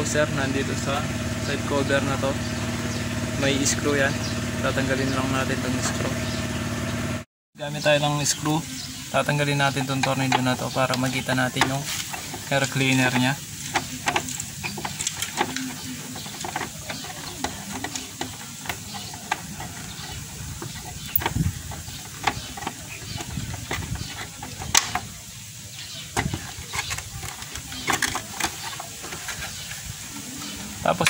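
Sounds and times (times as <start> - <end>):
steady hiss: 7.6 - 31.0
plastic cover being worked loose: 10.1 - 30.0.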